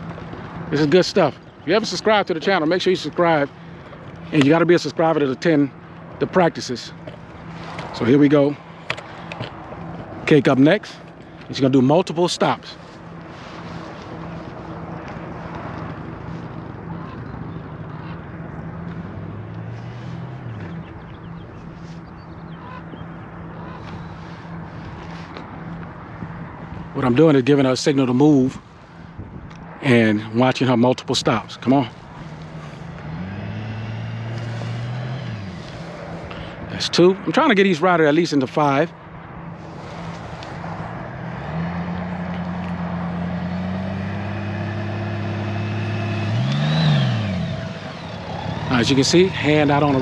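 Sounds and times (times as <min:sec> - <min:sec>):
motorcycle engine at low revs: 0:00.0 - 0:26.9, 0:31.3 - 0:36.7, 0:39.6 - 0:50.0
open-air background noise: 0:00.0 - 0:50.0.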